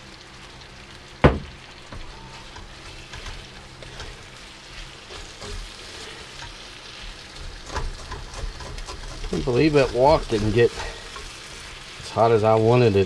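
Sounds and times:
light sizzling in a wok: 0.0 - 13.0
sharp knock: 1.2 - 1.5
spatula scraping a wok: 2.1 - 12.0.

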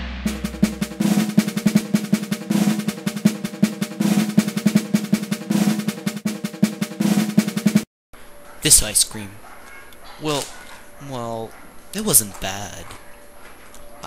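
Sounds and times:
gong stroke: 0.0 - 5.8
held pitched note: 0.0 - 5.9
snare drum roll: 0.0 - 7.9.

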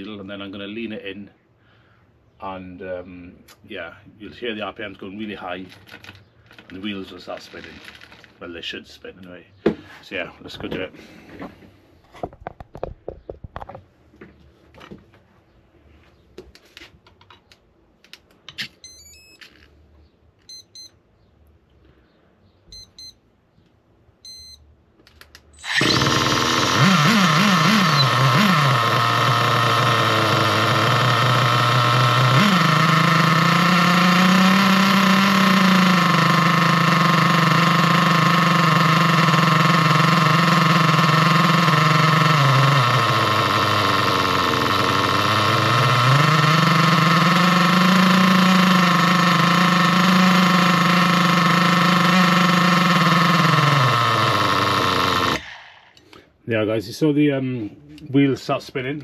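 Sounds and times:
small engine idling: 5.7 - 8.4, 25.6 - 56.2
short electronic beeps: 18.8 - 19.4, 20.5 - 21.0, 22.7 - 23.2, 24.2 - 24.7.

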